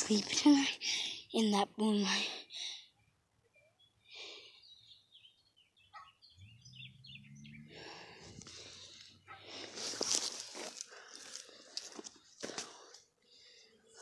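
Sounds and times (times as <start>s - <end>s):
birds chirping: 0.0s - 9.7s.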